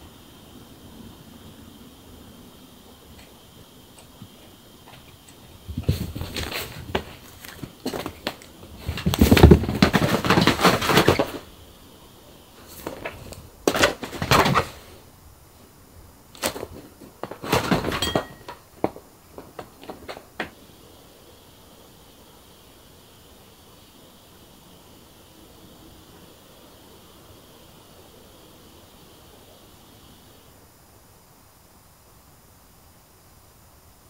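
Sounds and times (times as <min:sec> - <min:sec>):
cat paws scrabbling and thumping: 0:04.0 - 0:11.6, 0:12.6 - 0:15.0, 0:16.3 - 0:20.5.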